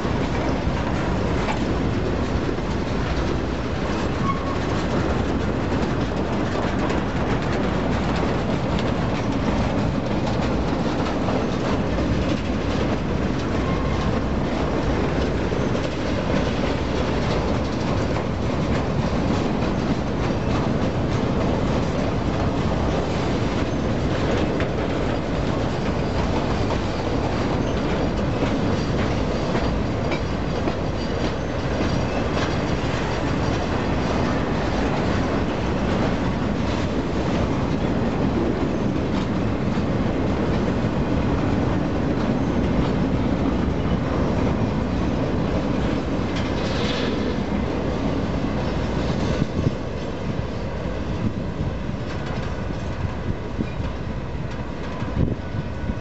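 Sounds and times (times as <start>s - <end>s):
train wheels rumbling on rails: 0.0s - 56.0s
high wheel squeal: 4.1s - 4.7s.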